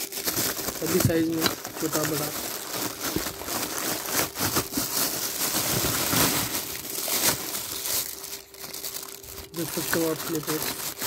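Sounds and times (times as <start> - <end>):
plastic bags crinkling: 0.0 - 11.0.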